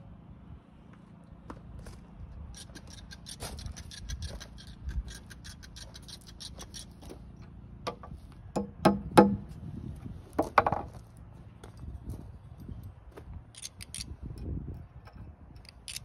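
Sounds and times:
hammer knocking on nail: 8.6s - 9.4s.

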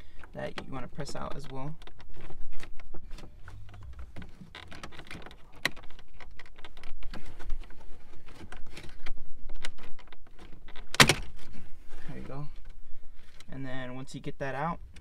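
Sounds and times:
plastic clicks and rubbing: 0.2s - 11.6s.

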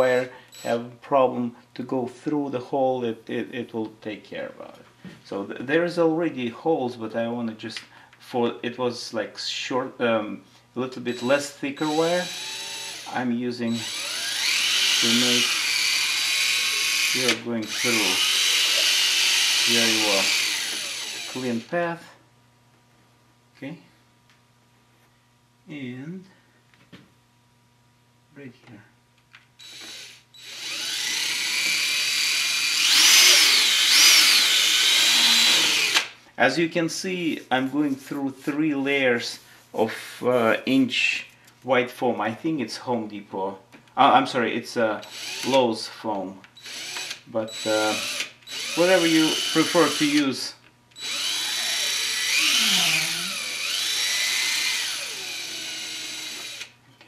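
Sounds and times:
cordless drill whining: 11.1s - 21.7s, 29.6s - 36.1s, 45.0s - 45.6s, 46.6s - 50.2s, 51.0s - 57.0s.

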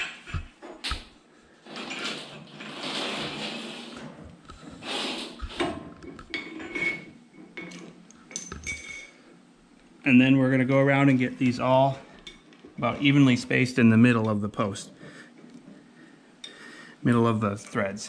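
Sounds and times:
cable scraping and rustling: 0.0s - 8.0s
metal cable clinks and knocks: 5.4s - 9.2s
metallic ring: 6.4s - 9.2s.

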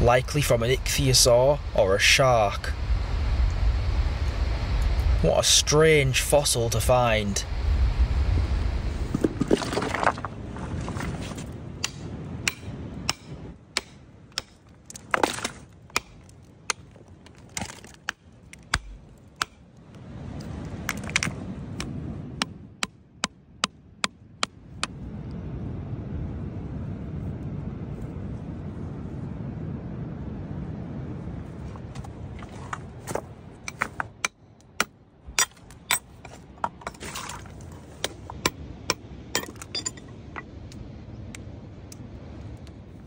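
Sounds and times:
low background rush: 0.0s - 43.0s
hammer striking rock: 11.8s - 16.8s, 17.6s - 19.6s.

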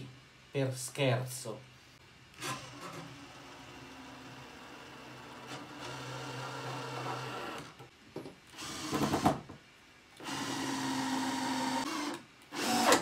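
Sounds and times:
cordless drill driving screws: 10.2s - 13.0s.

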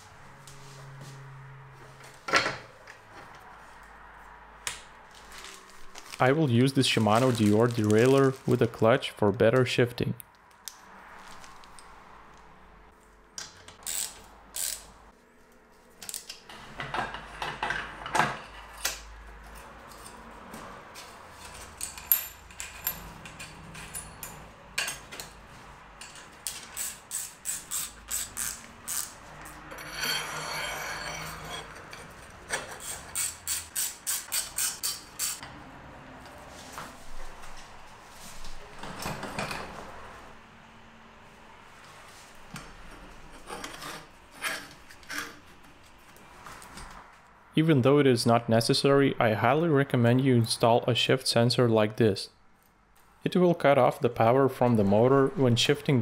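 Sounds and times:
ratchet wrench clicking: 13.8s - 14.9s, 26.4s - 29.6s, 32.8s - 35.4s
metal parts clicking and knocking: 21.5s - 25.3s.

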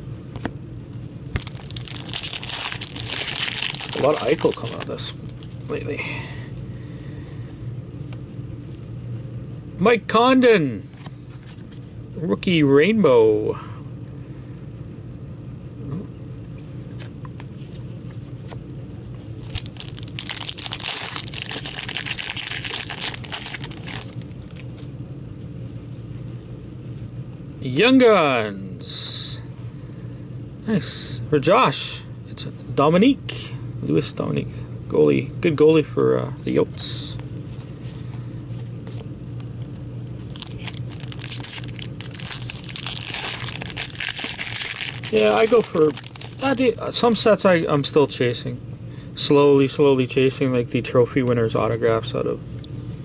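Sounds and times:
steady low hum: 0.0s - 53.0s
wrapper tearing and crinkling: 1.4s - 5.0s, 19.4s - 24.6s, 40.2s - 46.7s.

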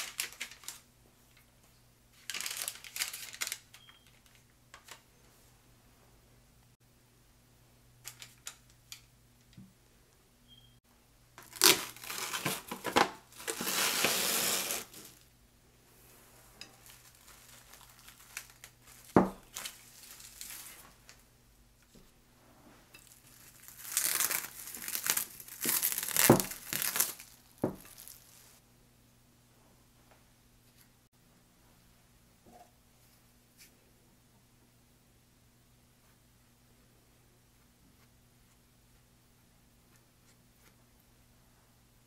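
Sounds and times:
plastic cling wrap crinkling: 0.0s - 0.8s, 2.1s - 5.0s, 11.4s - 15.3s, 16.7s - 21.2s, 23.0s - 28.6s.

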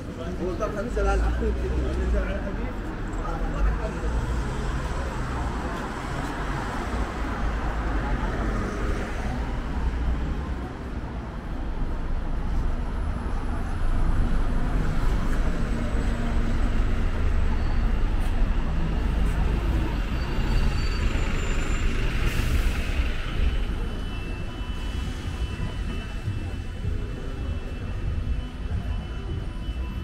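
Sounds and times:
road traffic: 0.0s - 30.0s
bus engine running: 10.6s - 30.0s.

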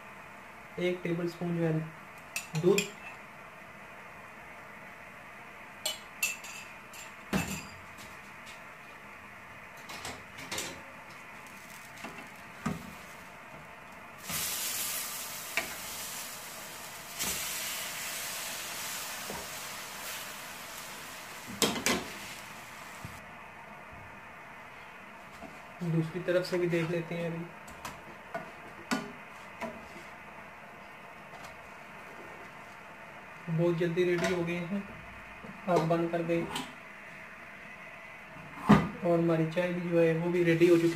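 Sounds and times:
bread sizzling in a pan: 14.1s - 23.2s.

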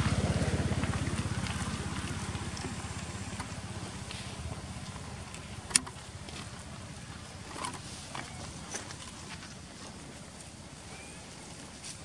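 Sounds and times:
small engine running: 0.0s - 8.9s.

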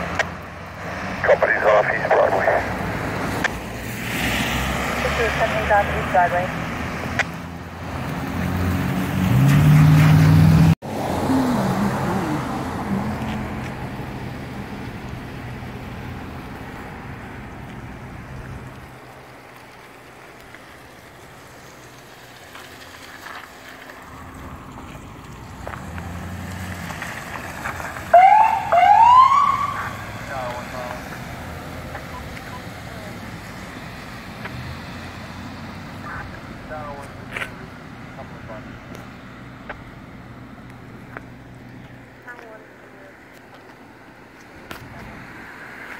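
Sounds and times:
engine idling and pulling away: 0.0s - 45.9s
vehicle engine driving: 0.0s - 45.9s
tyre hiss on wet road: 3.8s - 4.8s.

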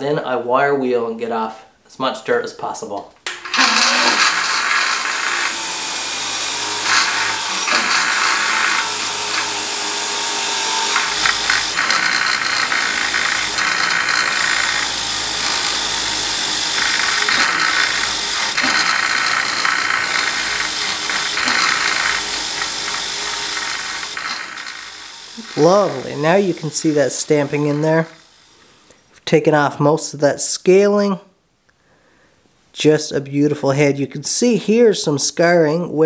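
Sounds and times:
grinder motor hum: 3.3s - 28.9s
wire wheel scratching metal: 3.4s - 28.6s.

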